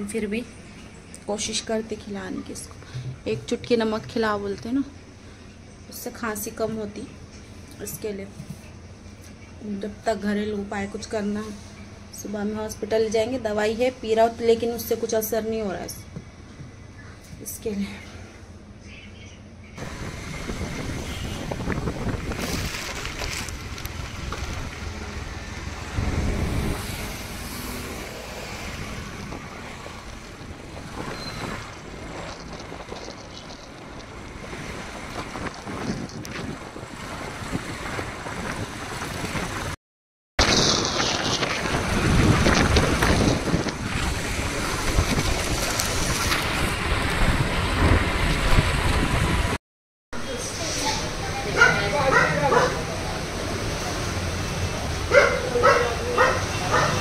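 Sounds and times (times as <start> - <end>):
wind buffeting microphone: 19.8 - 39.8, 40.4 - 49.6.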